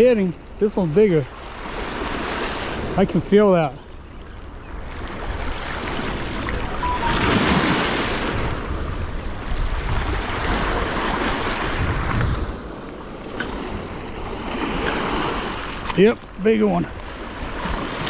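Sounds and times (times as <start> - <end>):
wind on microphone: 4.7 - 12.8.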